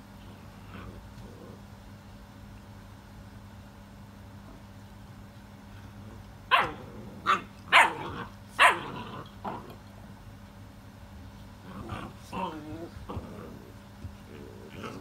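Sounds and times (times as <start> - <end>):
puppy barking: 6.5 - 9.1.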